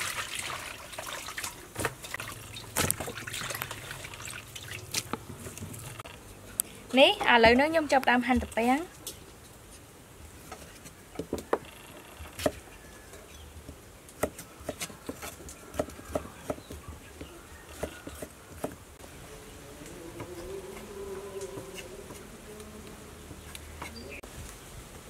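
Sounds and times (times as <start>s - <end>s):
knife chopping on wooden block: 14.2s - 16.8s.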